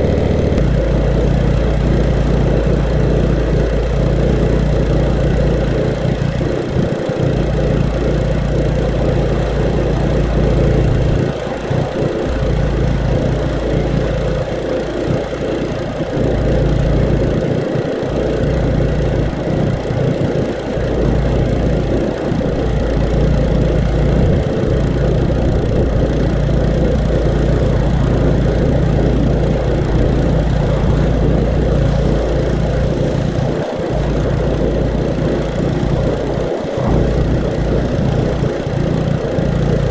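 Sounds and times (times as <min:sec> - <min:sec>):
pressure washer engine running: 0:00.0 - 0:39.9.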